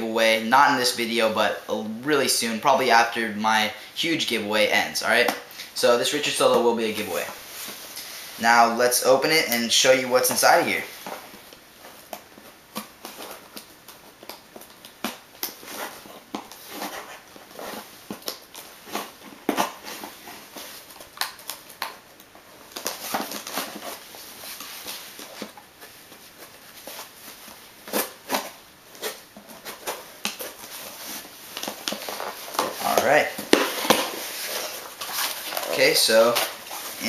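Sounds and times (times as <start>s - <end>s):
packaging rustling: 10.3s - 37.0s.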